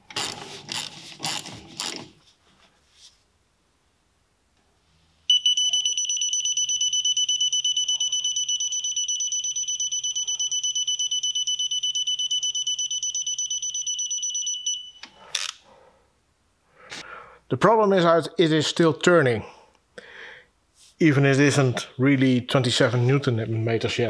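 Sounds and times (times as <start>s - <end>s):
torque wrench beeping: 5.3s - 15.5s.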